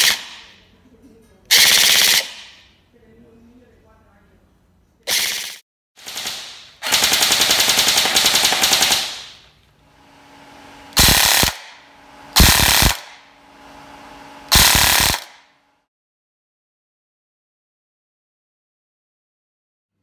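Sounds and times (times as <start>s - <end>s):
electric toy gun rattling bursts: 0.0s - 0.5s, 1.5s - 2.6s, 5.1s - 9.5s, 10.9s - 13.2s, 14.5s - 15.5s.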